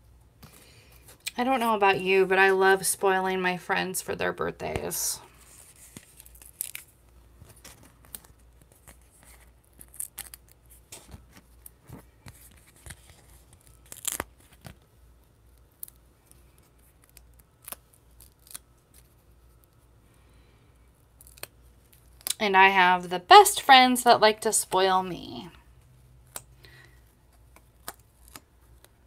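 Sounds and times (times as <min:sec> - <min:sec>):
foam pieces peeled from paper: 0:05.4 - 0:06.9.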